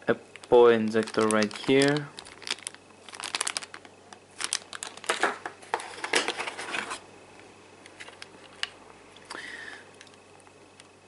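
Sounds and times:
plastic bag crinkling: 0.3s - 7.0s.

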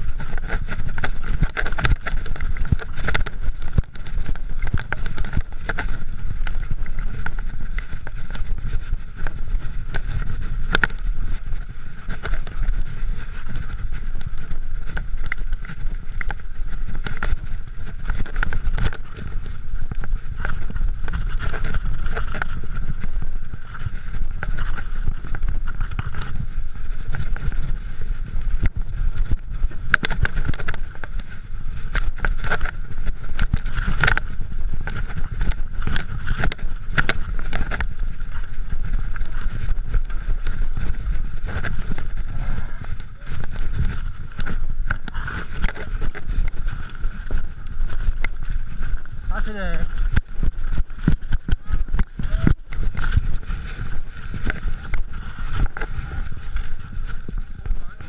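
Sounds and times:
bike tyres rolling on dirt: 0.0s - 58.0s
wind buffeting microphone: 0.0s - 58.0s.

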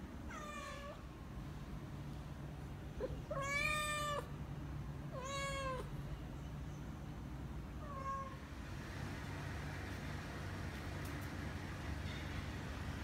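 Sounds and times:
cat meowing: 0.3s - 1.0s, 3.0s - 4.3s, 5.1s - 5.9s, 7.8s - 8.4s.

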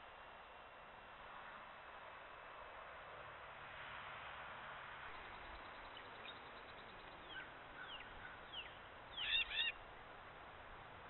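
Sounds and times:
whistled animal call: 8.6s - 9.8s.

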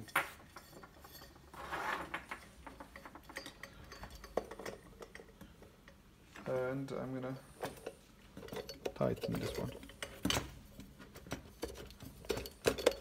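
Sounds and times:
light metal clinks and knocks: 0.0s - 13.0s
cable scraping rustle: 0.7s - 2.4s.

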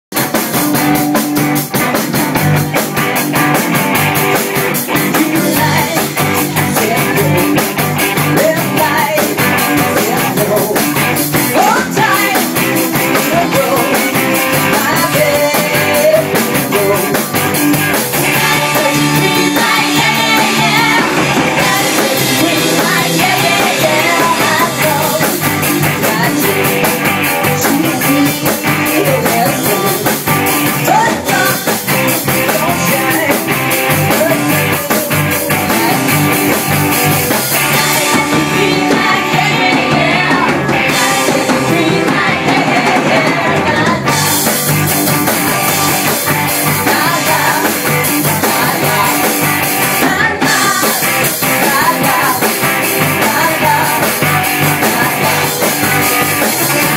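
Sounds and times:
rock band playing: 0.1s - 56.9s
women singing: 5.1s - 7.6s, 8.2s - 10.9s, 11.5s - 17.3s, 18.2s - 31.9s, 34.1s - 36.6s, 37.5s - 44.8s, 45.5s - 56.9s.

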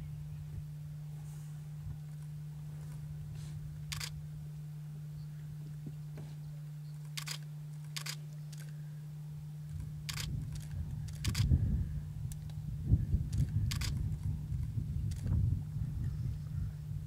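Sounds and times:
steady low hum: 0.0s - 17.0s
camera shutters clicking: 3.9s - 4.2s, 7.0s - 8.8s, 9.7s - 11.5s, 13.3s - 14.1s, 15.1s - 15.3s.

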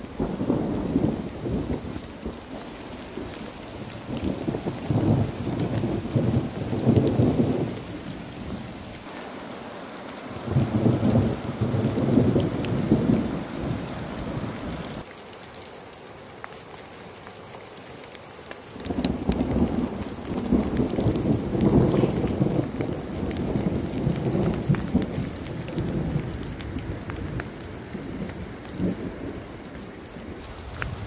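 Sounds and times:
steady rain: 0.0s - 31.0s.

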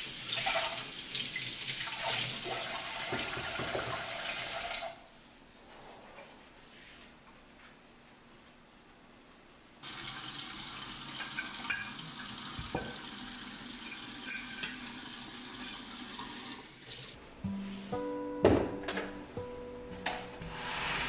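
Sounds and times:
tap water running into sink: 0.0s - 5.0s, 9.8s - 17.2s
soft background music: 17.2s - 21.0s.

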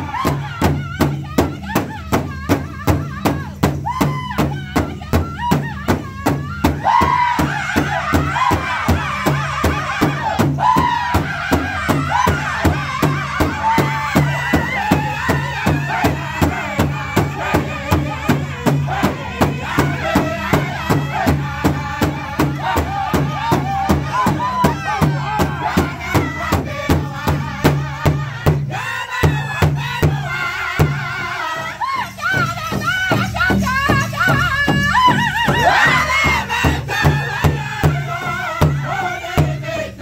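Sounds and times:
group singing in high voices: 0.0s - 40.0s
large hide drum beating: 0.2s - 28.7s.

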